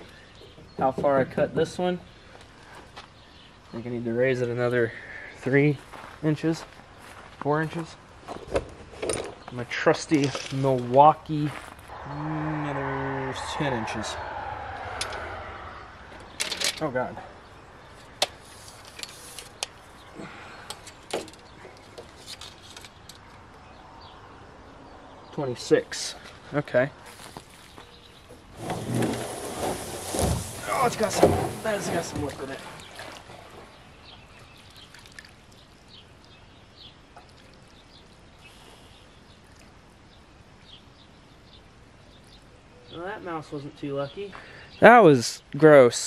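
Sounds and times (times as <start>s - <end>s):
small birds chirping: 0.0s - 8.5s, 9.2s - 28.5s, 30.1s - 46.0s
liquid trickling onto grass: 29.2s - 38.4s.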